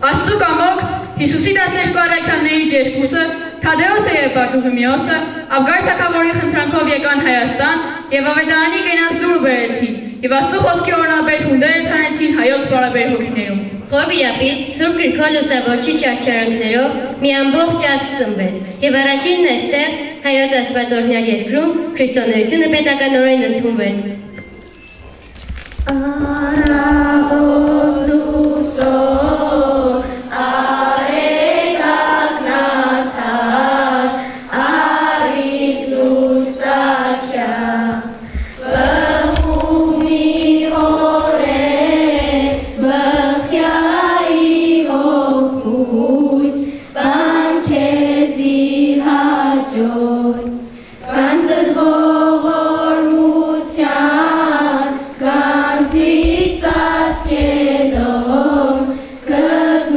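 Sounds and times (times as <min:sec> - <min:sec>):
choir singing in unison: 0:25.9 - 0:59.9.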